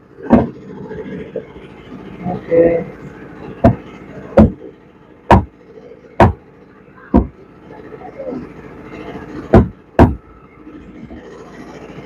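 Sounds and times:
machete chopping on wooden block: 9.6 - 10.2.

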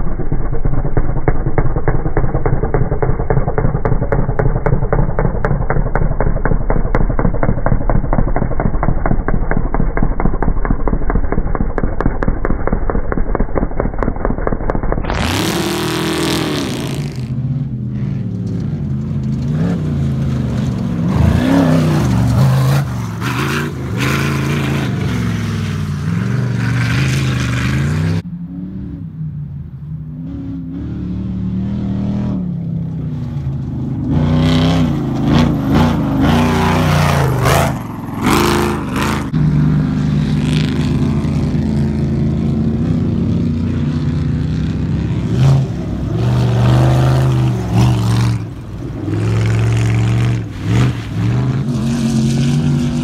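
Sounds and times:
off-road vehicle engine revving: 15.0 - 29.4, 30.0 - 53.0.

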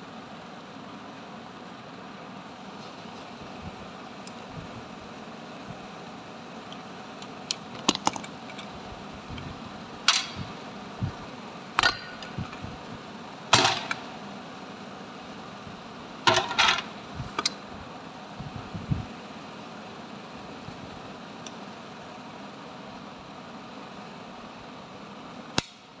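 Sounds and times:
steady background hum: 0.0 - 26.0
metal clinks and knocks: 7.7 - 8.7.

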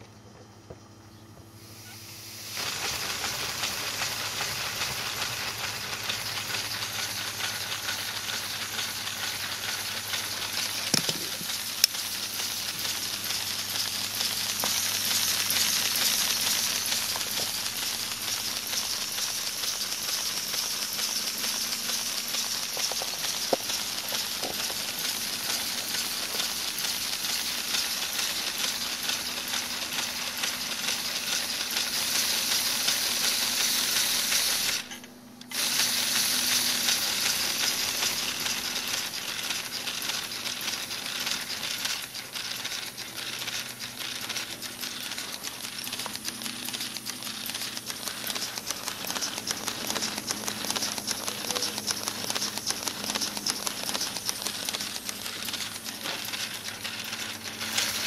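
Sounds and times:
air hissing: 1.5 - 58.0
plastic pistons clicking and rattling: 2.6 - 58.0.

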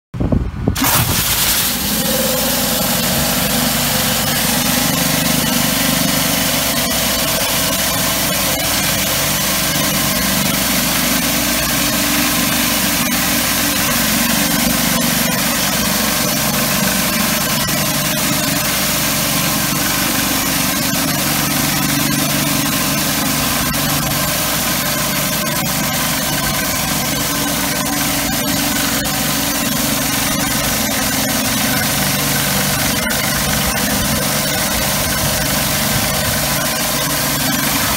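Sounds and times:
pressure washer engine running: 0.8 - 37.9
water jet hissing on concrete: 0.8 - 37.9.

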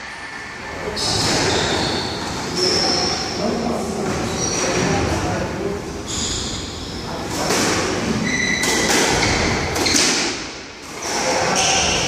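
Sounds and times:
shoe squeaks on wooden floor: 6.1 - 7.0
rackets hitting ball: 7.3 - 12.0
ball hitting court walls: 8.6 - 12.0.

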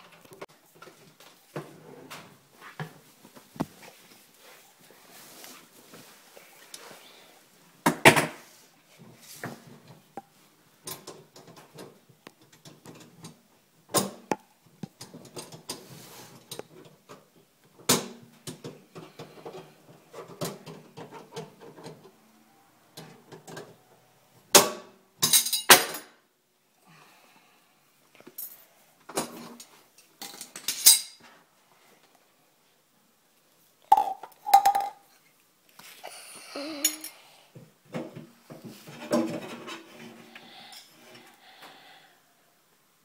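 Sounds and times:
tools and plumbing parts clattering: 25.2 - 26.2, 29.1 - 31.3, 38.0 - 40.2.

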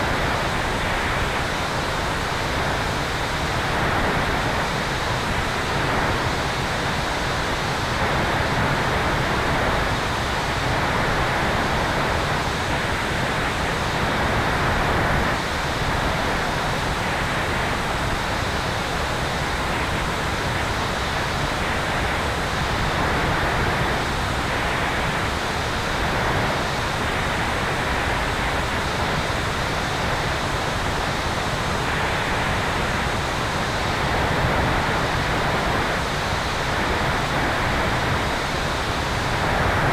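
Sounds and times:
airflow wind noise: 0.0 - 39.9.

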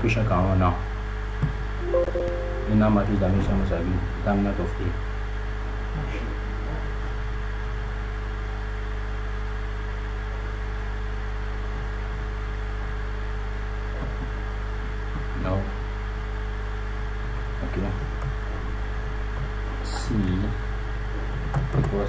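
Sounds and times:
low hum with higher tones: 1.8 - 7.2.

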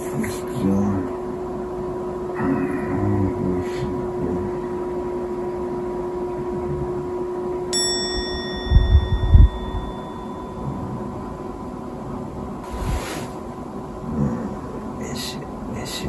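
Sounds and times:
steady hum: 0.0 - 16.0
bright bell ding: 7.8 - 11.0.

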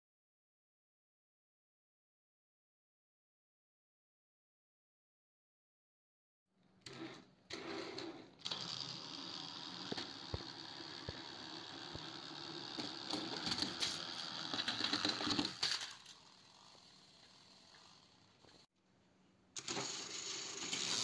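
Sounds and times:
toy train motor whirring: 6.9 - 18.7, 19.6 - 21.0.

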